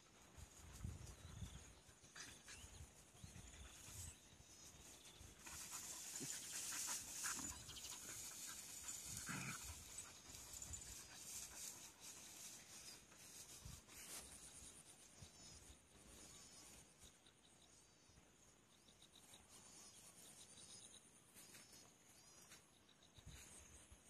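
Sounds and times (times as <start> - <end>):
scuffling in grass: 3.7 - 15.1.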